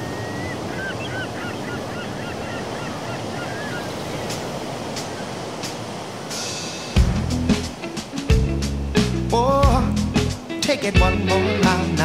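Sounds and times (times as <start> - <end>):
chirping bird calls: 0.0 - 5.6
ocean surf: 0.0 - 12.0
wind: 0.0 - 12.0.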